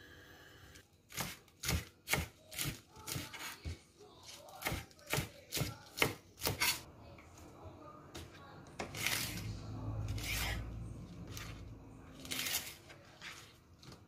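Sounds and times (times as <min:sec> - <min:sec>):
knife chopping on cutting board: 0:01.1 - 0:03.8, 0:04.6 - 0:06.8.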